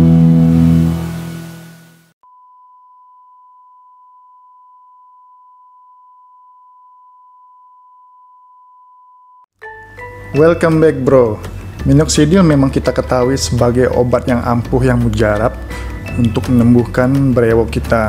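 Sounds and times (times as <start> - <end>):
intro music: 0.0 - 2.0, 9.6 - 18.0.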